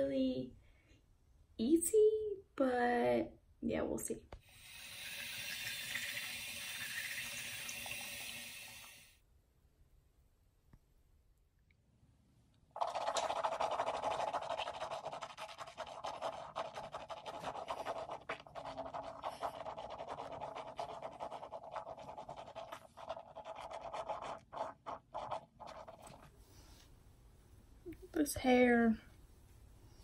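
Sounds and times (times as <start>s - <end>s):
mouthwash swishing in mouth: 13.2s - 26.8s.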